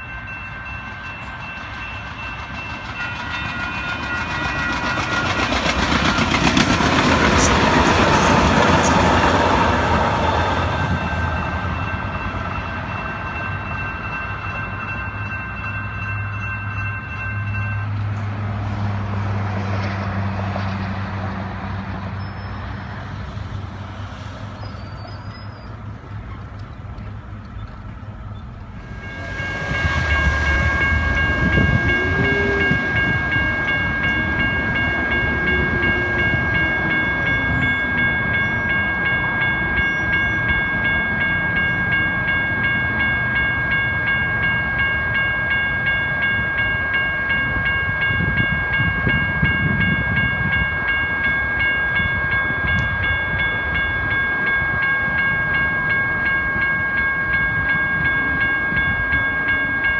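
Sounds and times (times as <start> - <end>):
railroad crossing bell ringing: 0.0 - 23.9, 24.6 - 59.9
road traffic rumble: 0.4 - 46.5.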